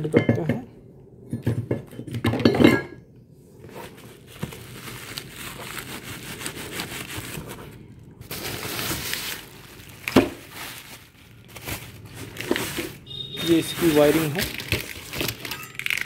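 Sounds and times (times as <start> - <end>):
bubble wrap and cardboard rustling: 3.6 - 16.0.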